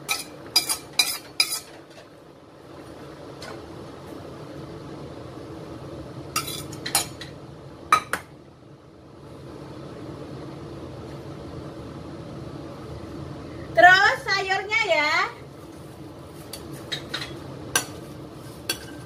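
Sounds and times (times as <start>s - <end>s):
utensil clinking on cookware: 0.0s - 2.1s, 18.7s - 19.0s
broth boiling in a pan: 0.0s - 19.0s.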